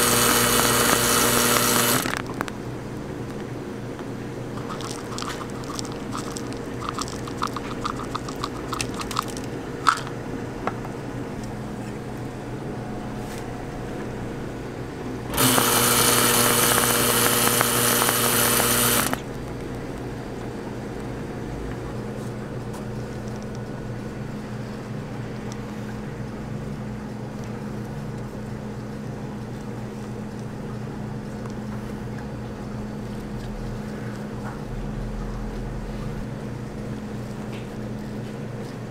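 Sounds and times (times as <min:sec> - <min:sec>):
seeds pouring clicks: 0:00.0 - 0:02.2, 0:04.6 - 0:10.1, 0:15.3 - 0:19.2
whipped cream dispenser hissing: 0:00.0 - 0:02.2, 0:15.3 - 0:19.2
low machine hum: 0:00.0 - 0:38.9.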